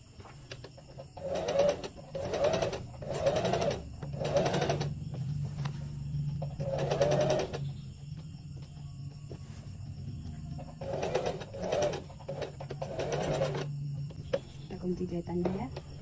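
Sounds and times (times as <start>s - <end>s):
sewing machine stitching: 0.6s - 5.0s, 6.4s - 7.7s, 10.6s - 13.7s.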